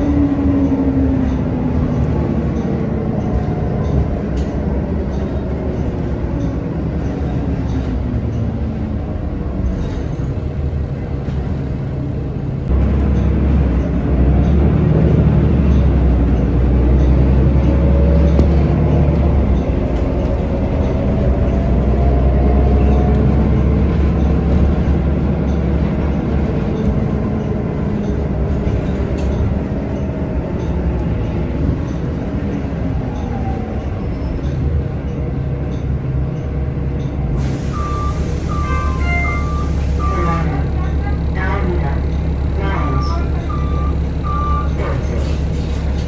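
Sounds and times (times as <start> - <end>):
bus engine drone: 0.0 - 46.0
road rumble: 0.0 - 46.0.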